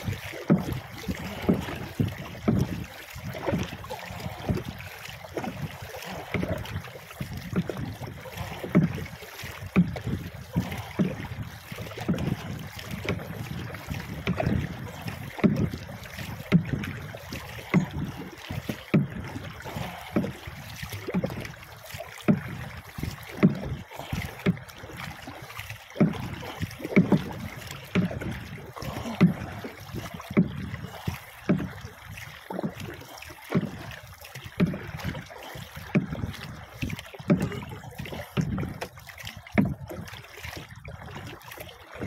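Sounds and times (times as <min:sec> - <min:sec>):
water slapping against boat hull: 0:00.0 - 0:42.0.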